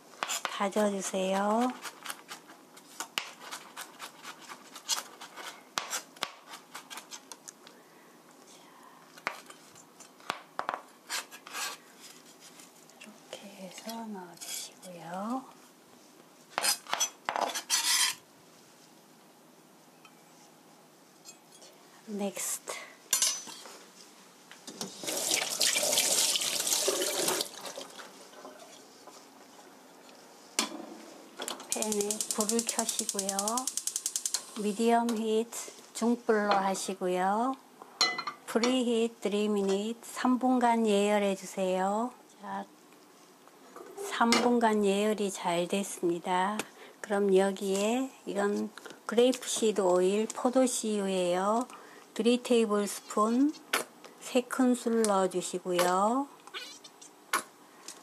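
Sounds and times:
tap water running into sink: 25.0 - 28.0.

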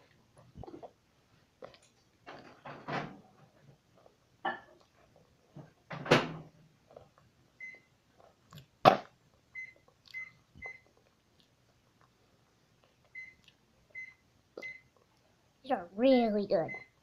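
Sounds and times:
chewing crispy food: 8.1 - 13.8.

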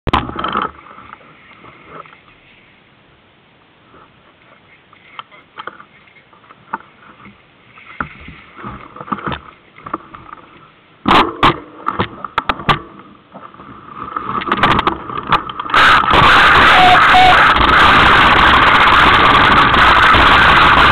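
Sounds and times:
loud steady rushing noise: 14.8 - 20.9.

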